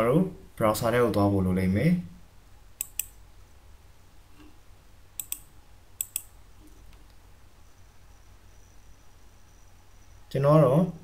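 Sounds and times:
computer mouse clicks: 2.8s - 3.2s, 5.2s - 7.2s.

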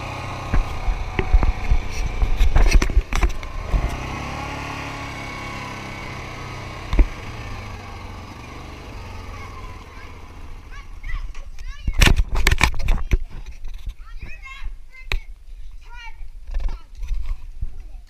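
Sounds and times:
atv engine running: 0.0s - 12.7s
knocks and clatter: 0.5s - 4.0s, 11.3s - 14.0s.

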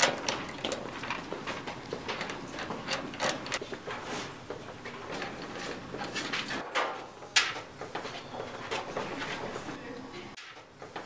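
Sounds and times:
metallic knocks and rattles: 0.0s - 3.6s, 4.5s - 9.0s.

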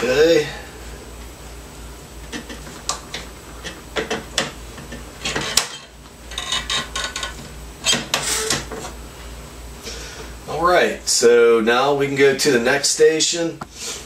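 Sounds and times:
clicks and knocks of metal and plastic: 2.3s - 8.9s.

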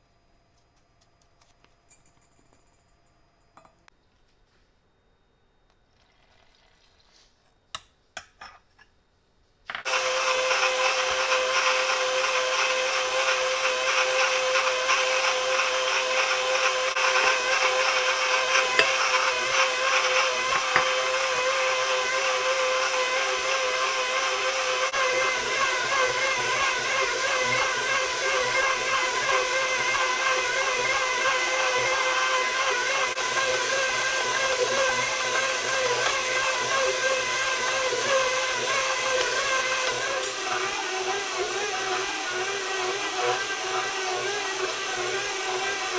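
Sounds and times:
stand mixer motor whine: 9.8s - 45.9s.

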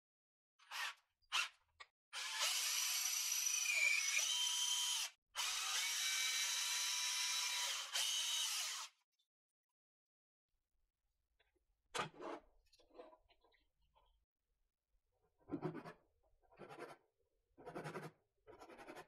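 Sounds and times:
cordless drill spinning: 2.2s - 8.9s.

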